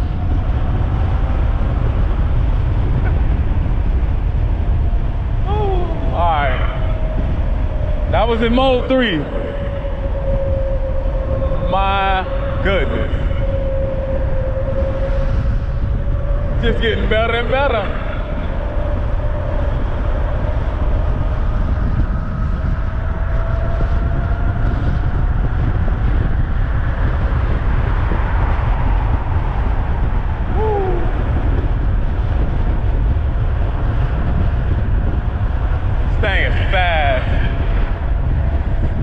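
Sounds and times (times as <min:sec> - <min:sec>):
wind buffeting microphone: 0:00.0 - 0:39.0.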